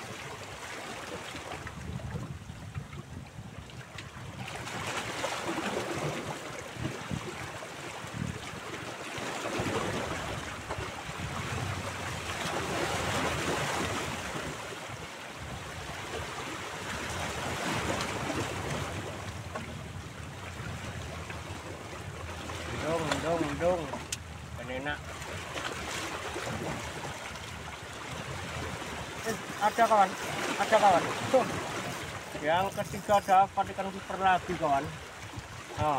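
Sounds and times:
waves splashing against rocks: 4.3 - 35.9.

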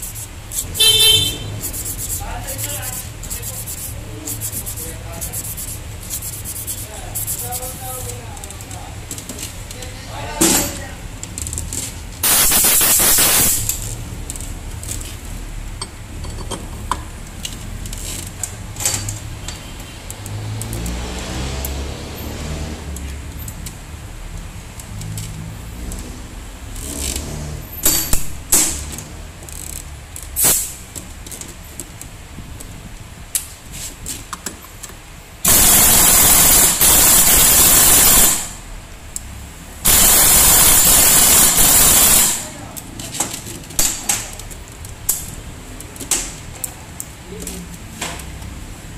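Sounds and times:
pneumatic impact wrench bursts: 12.2 - 14.0, 30.4 - 30.8, 35.4 - 38.7, 39.8 - 42.5
tools clicking on metal: 23.0 - 23.8.

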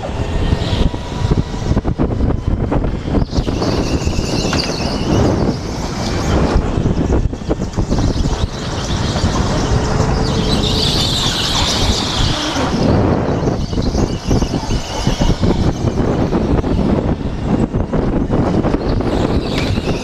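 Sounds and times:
go-kart engine at speed: 0.0 - 20.0
wind rushing: 0.0 - 20.0.

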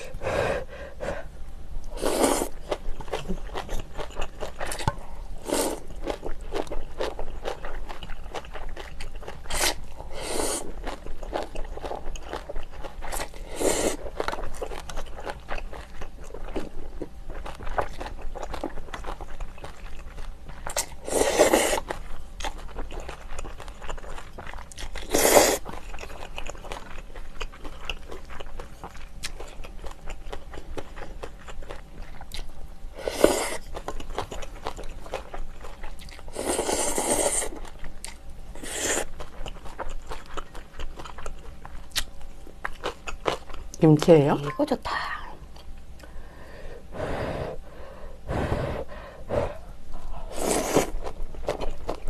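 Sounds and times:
chewing: 1.9 - 43.9, 49.5 - 52.0
noodles being slurped: 50.3 - 51.2.

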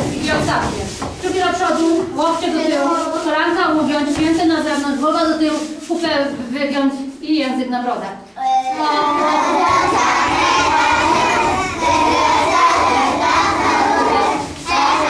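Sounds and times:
children singing and shouting: 2.0 - 4.2, 8.4 - 15.0.

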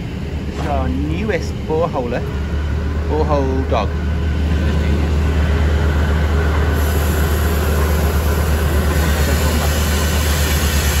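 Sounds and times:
drilling rig low rumble: 0.0 - 11.0
air compressor hiss: 6.7 - 11.0.

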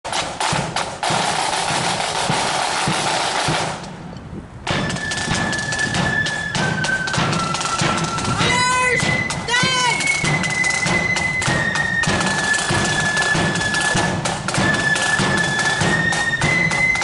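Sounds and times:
steady drum beats: 0.0 - 17.0
snare drum roll: 0.1 - 4.0, 4.7 - 17.0
flutes holding long notes: 4.7 - 17.0.

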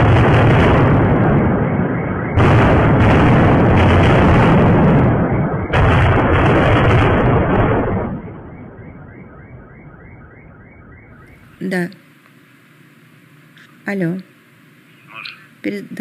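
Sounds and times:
deep explosion blasts: 0.0 - 11.5.

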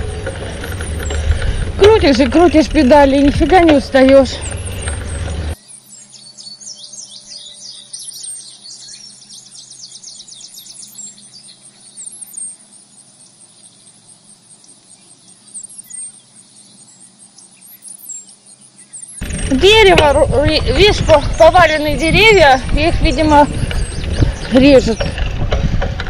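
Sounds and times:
birds chirping: 0.0 - 26.0
high-pitched insect trill: 5.6 - 19.3.

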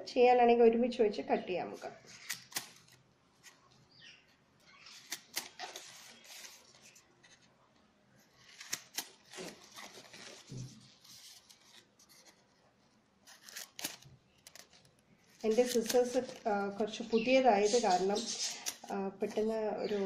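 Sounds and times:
scissors snipping: 2.1 - 3.0, 4.9 - 6.5, 8.5 - 10.0, 13.3 - 14.8, 15.4 - 16.6.

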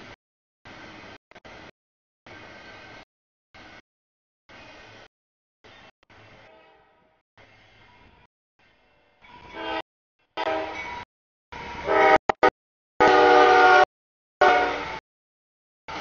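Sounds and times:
locomotive air horn blasts: 9.5 - 9.8, 10.4 - 11.0, 11.8 - 15.0.

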